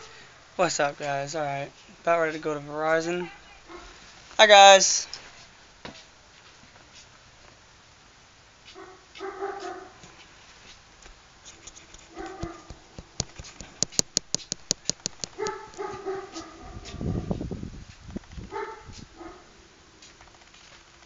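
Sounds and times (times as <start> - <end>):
dog barking: 3.3 - 4.0, 8.7 - 10.0, 12.1 - 12.8, 15.3 - 17.3, 18.5 - 19.5
rapid sharp clicks: 11.5 - 15.9.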